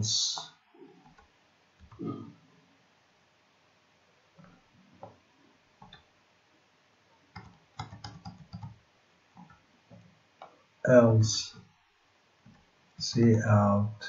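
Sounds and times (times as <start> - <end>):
faint keyboard keystrokes: 7.4 - 8.8.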